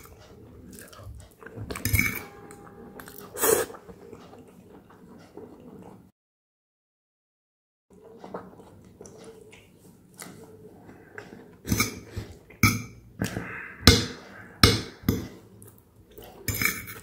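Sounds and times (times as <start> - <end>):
quiet chewing sounds: 0.0 - 6.1, 7.9 - 12.6, 15.3 - 17.0
metal fork scraping a plate: 1.7 - 3.7, 16.5 - 17.0.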